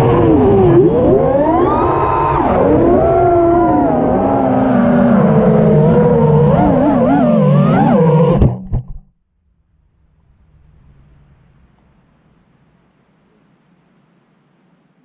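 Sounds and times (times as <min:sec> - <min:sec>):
drone motors whining: 0:00.0 - 0:08.6
drone knocking on grass: 0:08.4 - 0:09.1
faint hiss: 0:09.8 - 0:15.0.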